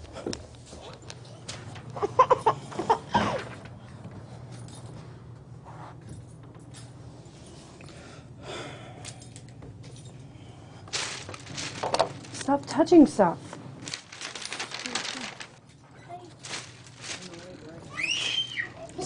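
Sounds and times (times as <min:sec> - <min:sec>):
faint rustles: 0:10.0 - 0:12.6, 0:13.4 - 0:19.0.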